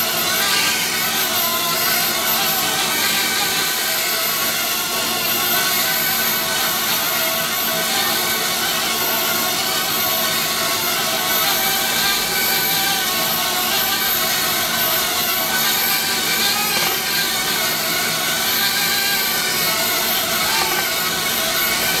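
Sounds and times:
drone propellers buzzing: 0.0 - 22.0.

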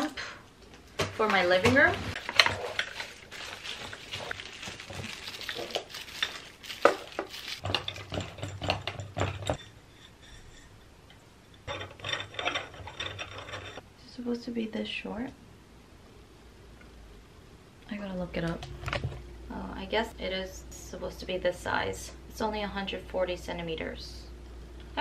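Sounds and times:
plastic wrap crinkling: 1.2 - 8.2.

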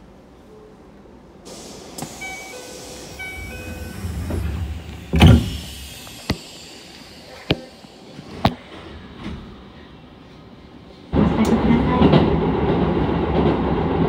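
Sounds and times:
sliding doors shutting thud: 1.5 - 8.6
train door chime: 2.0 - 6.1.

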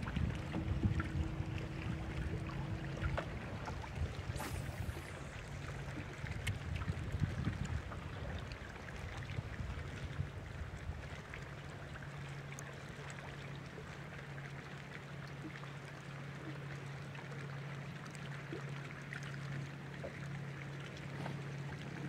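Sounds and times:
electric trolling motor hum: 0.0 - 8.7
small waves lapping against hull: 0.0 - 22.0.

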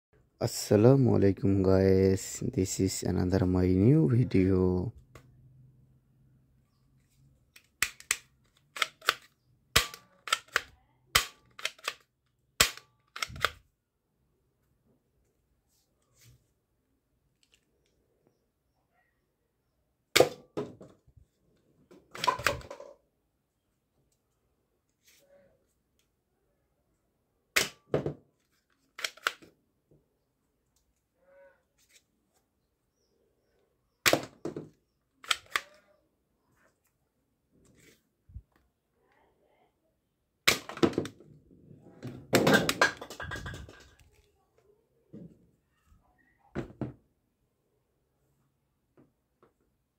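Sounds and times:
toy pistol plastic clicks and snaps: 7.6 - 13.6, 29.0 - 29.5, 35.2 - 35.8.

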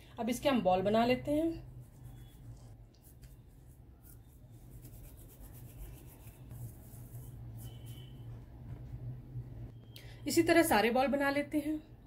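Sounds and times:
hands rubbing dough: 1.6 - 8.9.

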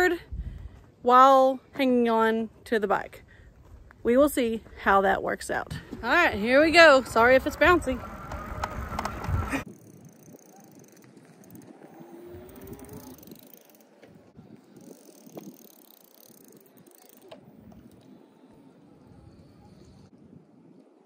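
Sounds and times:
electric bike motor whine: 6.8 - 20.1.

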